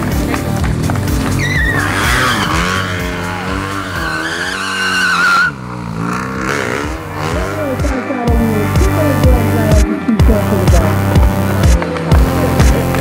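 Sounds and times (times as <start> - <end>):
motorcycle engine revving: 0.0 - 13.0
tyre squealing: 1.2 - 7.6.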